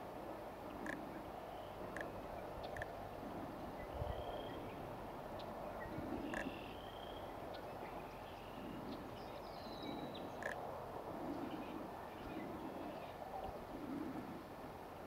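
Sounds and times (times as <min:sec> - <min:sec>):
steady background hiss: 0:00.0 - 0:15.0
distant small birds calling: 0:00.7 - 0:10.6.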